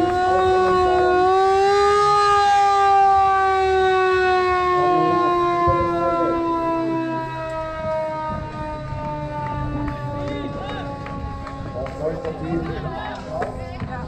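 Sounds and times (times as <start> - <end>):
siren long tone: 0.0 - 13.3.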